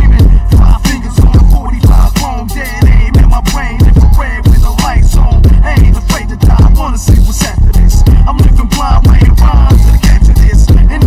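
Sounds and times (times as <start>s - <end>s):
bass-boosted hip hop music: 0.0s - 11.0s.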